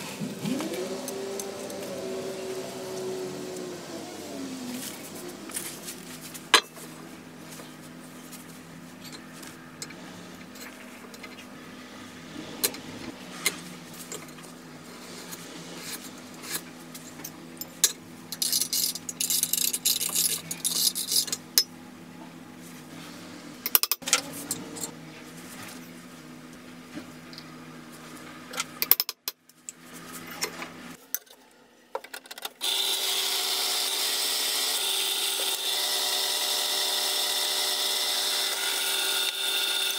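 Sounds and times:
drill press drilling steel: 0:32.6 - 0:39.9.

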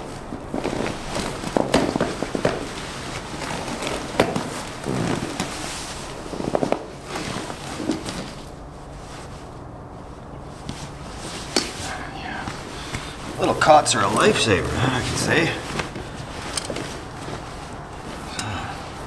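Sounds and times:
sleeping bag rustling: 0:00.0 - 0:19.0
camp cot frame clicks and knocks: 0:00.6 - 0:05.6.

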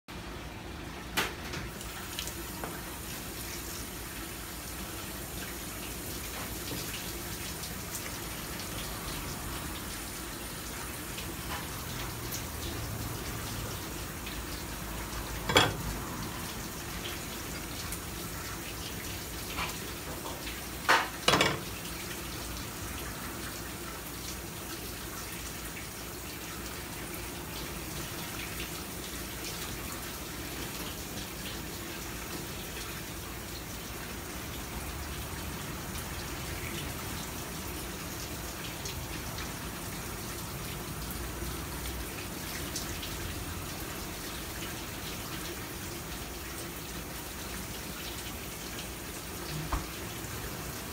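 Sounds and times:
tap water splashing: 0:01.2 - 0:02.9, 0:15.4 - 0:16.0, 0:19.4 - 0:21.9, 0:49.5 - 0:50.1.

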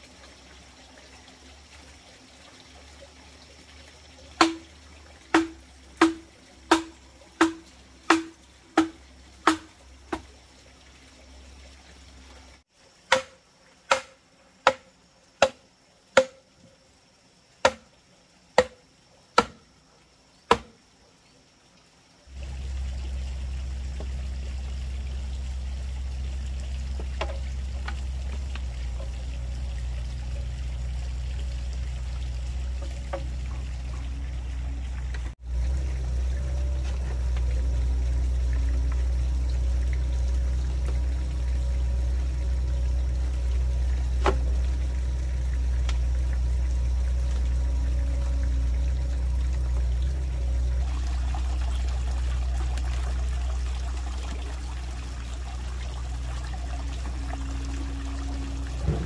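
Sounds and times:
hammer striking post: 0:04.4 - 0:04.6, 0:05.3 - 0:10.2, 0:13.1 - 0:15.6.

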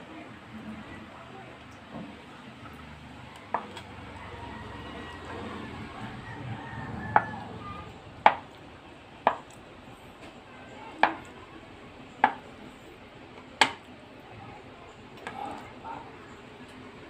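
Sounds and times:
knife tapping cutting board: 0:08.2 - 0:08.5, 0:09.2 - 0:09.6, 0:11.0 - 0:11.2, 0:12.2 - 0:12.4.

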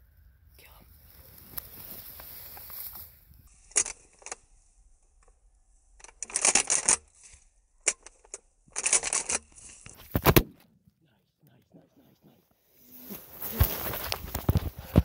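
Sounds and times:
shotgun action rattling: 0:03.7 - 0:04.5, 0:05.2 - 0:10.4.

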